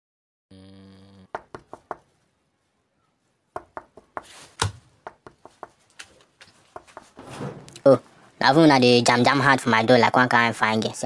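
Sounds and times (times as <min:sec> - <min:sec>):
knocking on a door: 0:01.3 - 0:02.0, 0:03.6 - 0:04.3, 0:05.0 - 0:05.8, 0:06.7 - 0:07.6.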